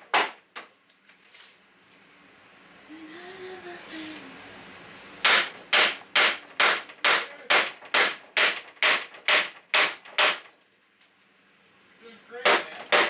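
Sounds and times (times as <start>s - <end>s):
hammer striking wood: 0.0s - 0.7s, 5.2s - 10.5s, 12.4s - 13.0s.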